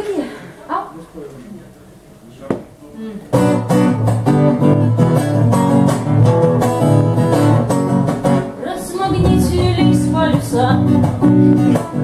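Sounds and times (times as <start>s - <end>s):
acoustic guitar strumming chords: 3.4s - 12.0s
bass guitar: 3.4s - 12.0s.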